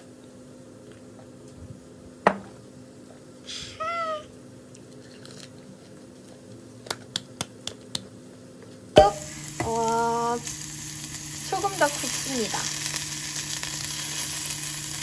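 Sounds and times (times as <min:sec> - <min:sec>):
short high vocal sound: 0:03.5 - 0:04.3.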